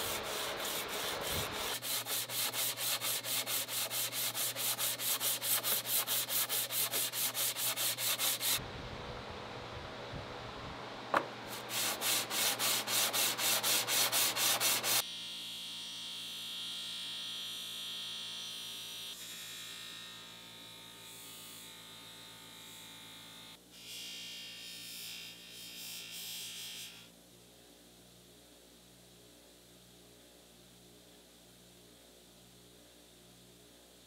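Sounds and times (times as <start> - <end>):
hand sanding metal on sandpaper: 0.0 - 8.6, 11.5 - 15.0.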